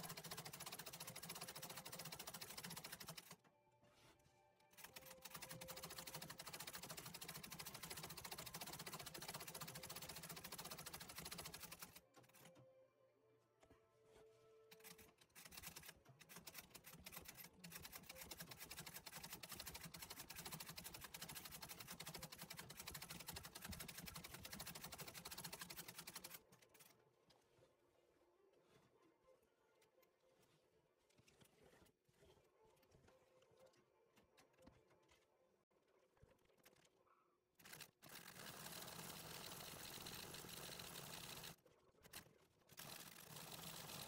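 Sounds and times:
treadle sewing machine stitching: 0.0s - 3.4s, 4.7s - 12.6s, 14.7s - 26.9s, 37.6s - 44.0s.

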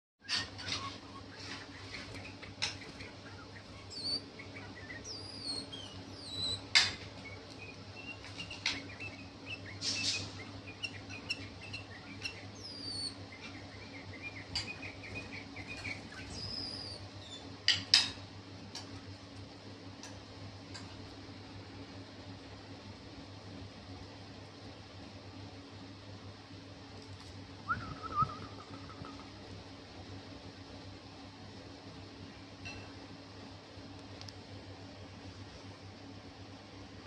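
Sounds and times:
steady low hum: 0.2s - 37.0s
bird chirps: 0.3s - 17.5s, 27.7s - 29.4s
high whistled bird notes: 27.6s - 29.2s.

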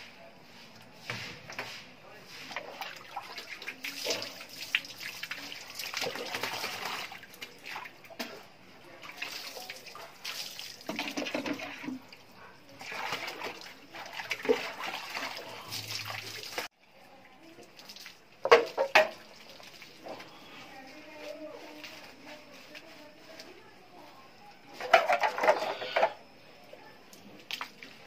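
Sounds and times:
water pouring onto tiled floor: 2.5s - 8.4s, 9.0s - 16.7s, 17.4s - 20.3s.

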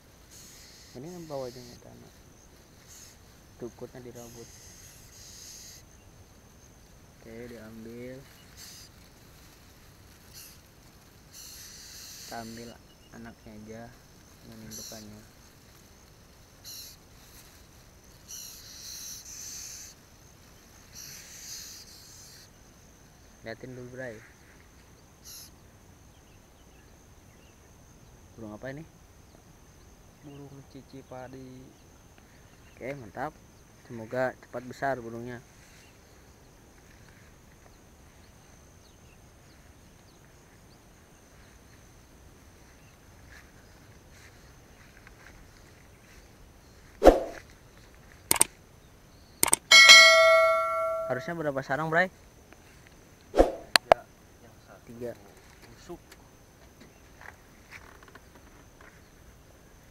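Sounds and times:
rice plants and grass rustling: 0.0s - 5.1s, 5.8s - 18.8s, 35.4s - 49.3s, 52.2s - 53.7s
high insect buzz: 0.0s - 33.9s, 35.4s - 51.4s
thin falling bird chirps: 49.4s - 51.3s.

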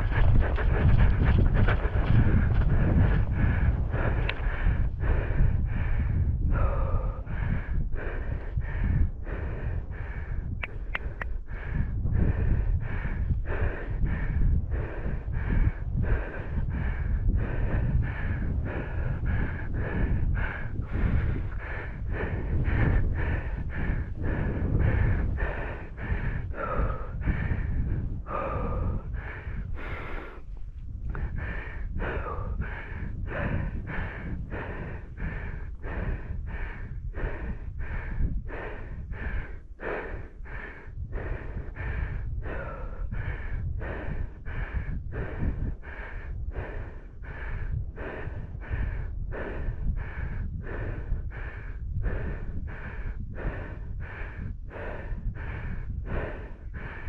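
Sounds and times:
person panting hard: 0.0s - 57.0s
wind rumbling on microphone: 0.0s - 57.0s.

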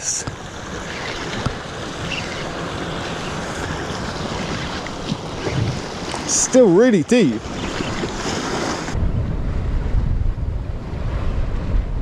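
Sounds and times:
surf breaking on rocks: 0.0s - 9.0s
wind buffeting microphone: 0.3s - 12.0s.

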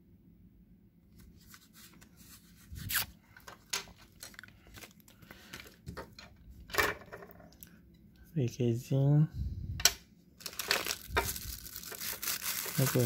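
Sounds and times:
plastic film being peeled: 1.4s - 3.1s, 10.4s - 13.0s.

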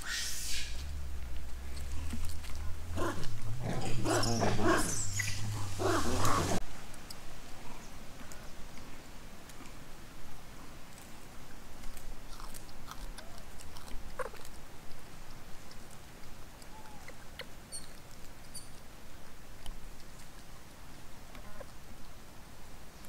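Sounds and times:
high animal squeaks: 2.9s - 6.6s.

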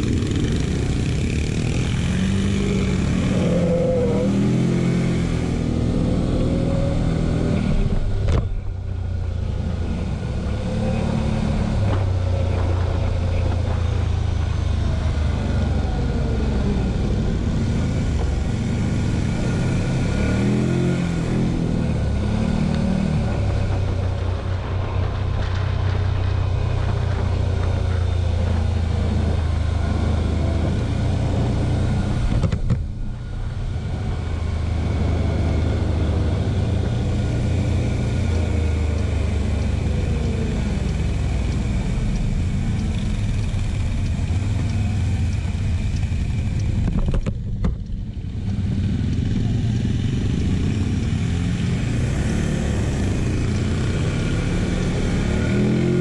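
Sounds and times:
quad bike engine running: 0.0s - 6.0s.

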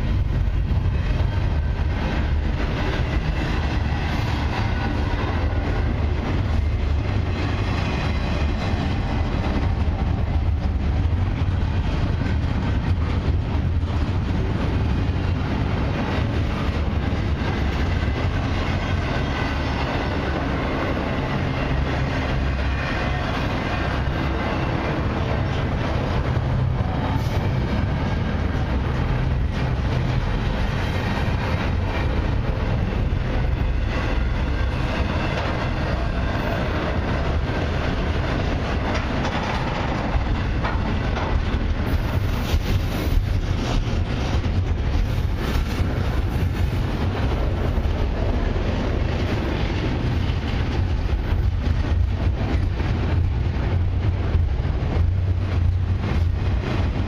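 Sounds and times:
steel wheels rumbling on rails: 0.0s - 57.0s
freight car clicks and clanks: 38.4s - 42.5s.

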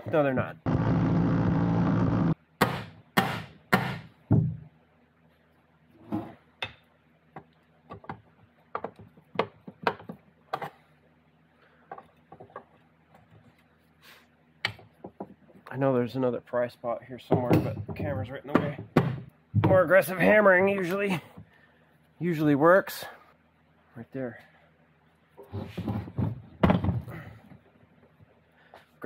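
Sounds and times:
impact driver hammering: 2.1s - 4.5s
loud sharp knocks: 2.6s - 4.6s.

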